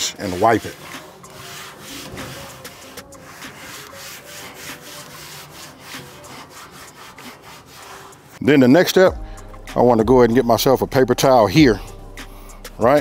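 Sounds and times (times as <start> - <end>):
damp rag rubbing steel plate: 0.0 - 8.4.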